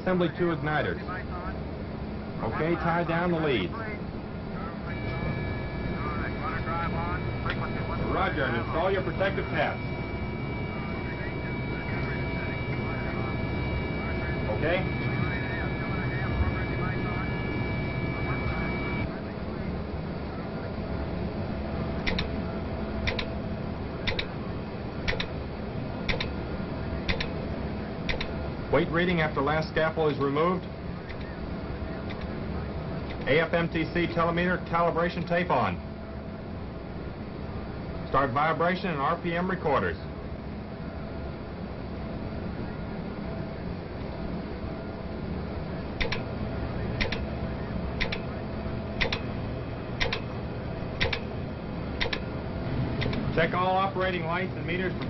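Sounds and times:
low hum: 0.0s - 55.0s
clock ticking double clicks: 22.0s - 22.3s, 23.0s - 23.3s, 24.1s - 24.3s, 25.1s - 25.3s, 26.1s - 26.3s, 28.1s - 28.3s, 46.0s - 46.2s, 47.0s - 47.2s, 49.0s - 49.2s, 50.0s - 50.2s, 51.0s - 51.2s, 52.0s - 52.2s.

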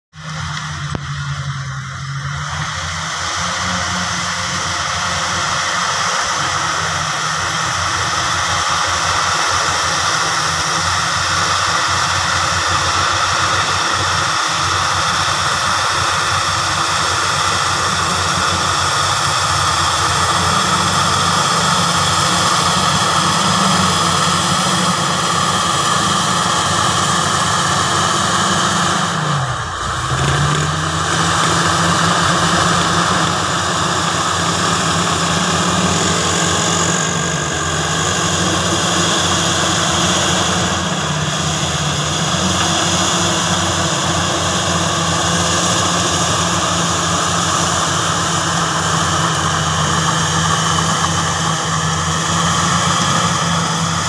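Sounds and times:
bulldozer diesel engine under load: 0.1s - 54.0s.

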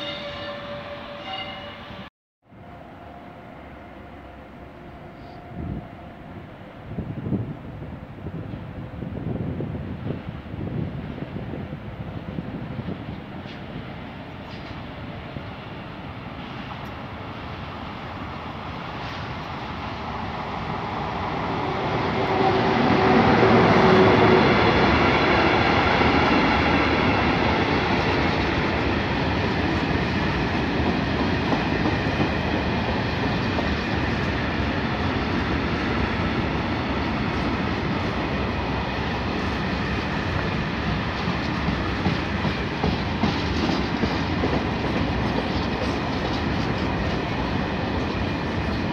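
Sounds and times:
freight train passing: 0.0s - 48.9s
wheels clattering on rails: 40.9s - 48.9s.

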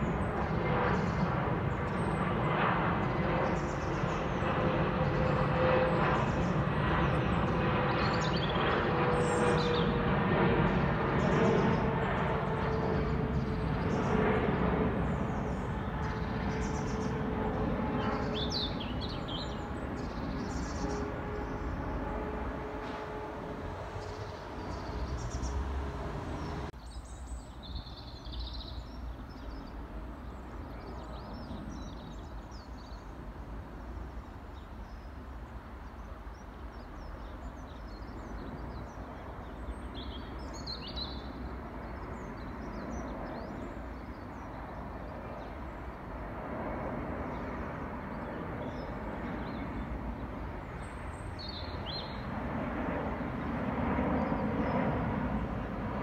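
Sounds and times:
small birds chirping: 0.0s - 22.3s, 23.8s - 33.2s
jet engine rumble: 0.0s - 26.8s, 41.4s - 56.0s.

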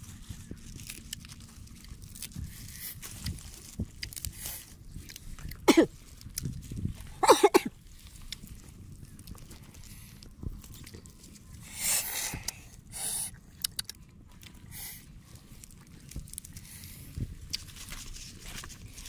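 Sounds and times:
fingers tearing food crackling: 0.1s - 6.9s, 13.3s - 19.0s.

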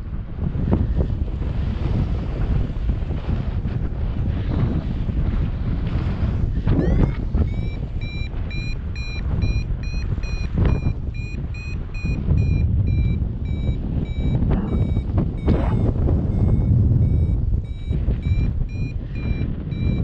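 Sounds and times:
wind on microphone: 0.0s - 20.0s
variometer beeping: 6.6s - 20.0s.

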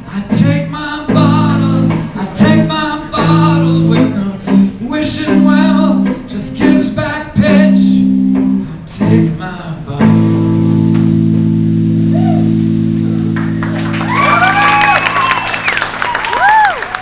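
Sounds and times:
man singing: 0.0s - 10.8s
live band playing: 1.1s - 9.4s, 10.0s - 15.8s.

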